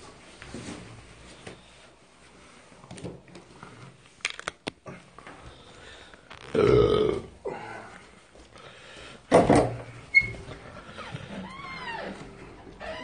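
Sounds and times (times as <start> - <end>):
man burping: 6.4 - 7.6.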